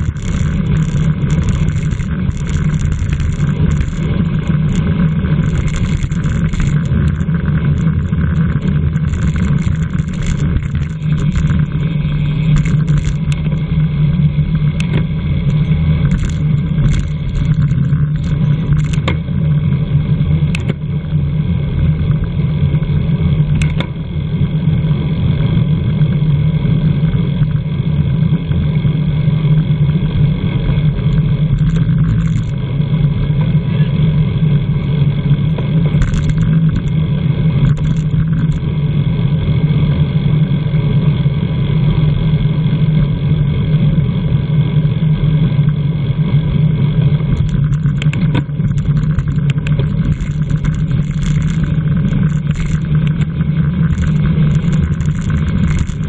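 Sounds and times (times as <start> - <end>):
road noise: 0.0 - 21.1, 47.3 - 56.0.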